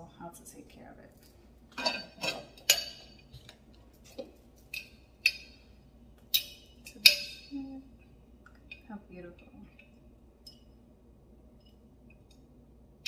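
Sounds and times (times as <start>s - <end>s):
metal lid clinking on glass: 1.8s - 3.2s.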